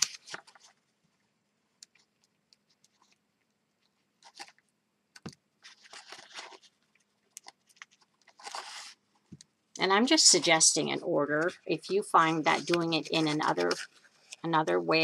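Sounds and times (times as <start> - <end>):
cardstock rustling and crinkling: 0.0 - 1.1, 3.8 - 4.6, 5.2 - 9.4, 10.0 - 15.0.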